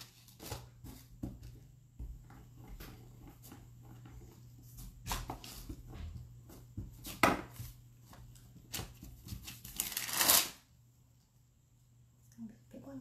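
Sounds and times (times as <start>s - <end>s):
parchment paper crinkling: 7.2s - 10.6s.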